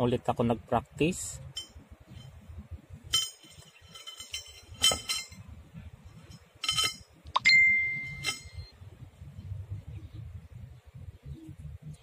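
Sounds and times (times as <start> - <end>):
metal clinking on steel pipe: 1.5 - 2.4, 3.1 - 5.5, 6.1 - 8.7
ringing strike on steel pipe: 6.6 - 8.7.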